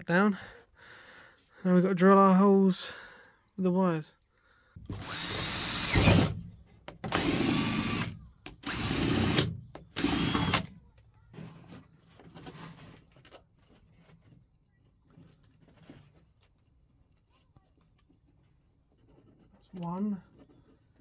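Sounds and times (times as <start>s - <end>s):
cordless drill boring plastic: 4.9s - 6.4s, 7.0s - 10.7s.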